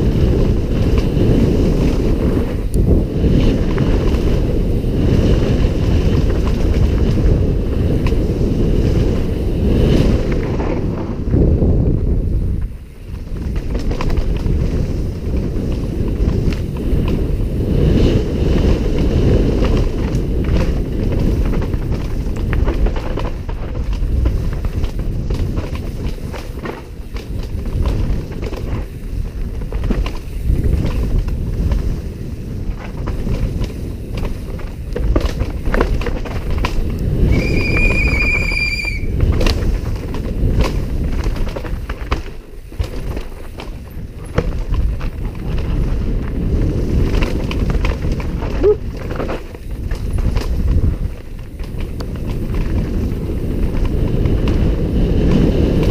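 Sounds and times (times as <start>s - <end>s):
bike clattering over rough ground: 0.0s - 55.9s
wind buffeting microphone: 0.0s - 55.9s
high steady squeal: 37.2s - 39.2s.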